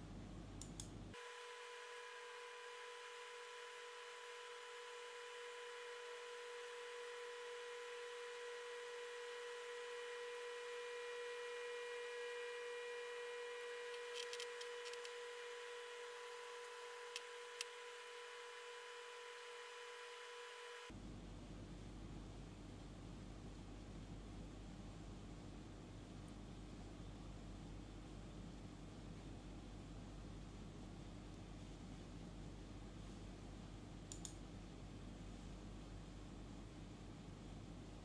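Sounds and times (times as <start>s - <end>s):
cooler fan whirring hum: 0.0s - 38.0s
faint clicks: 34.1s - 34.4s.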